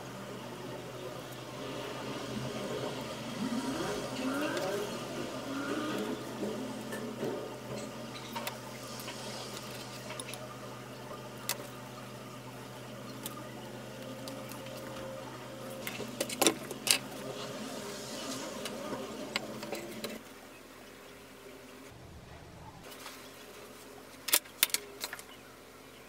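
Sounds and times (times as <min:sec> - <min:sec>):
steady low hum: 0:00.0 - 0:24.3.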